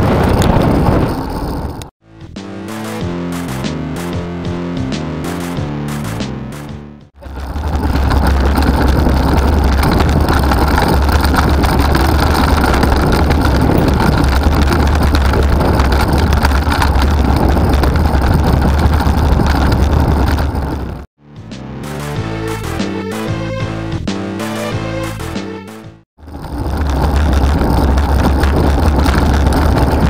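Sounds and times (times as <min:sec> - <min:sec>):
wind rushing on microphone: 0:00.0 - 0:01.9, 0:07.2 - 0:21.1, 0:26.4 - 0:30.0
road traffic: 0:02.8 - 0:21.5.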